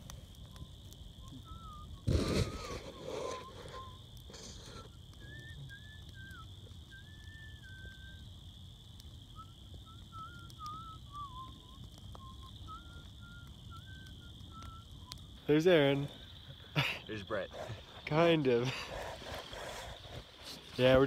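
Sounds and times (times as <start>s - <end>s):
night insects droning: 0.0s - 21.0s
person whistling a slow tune: 0.5s - 4.0s, 4.7s - 8.3s, 9.3s - 15.4s.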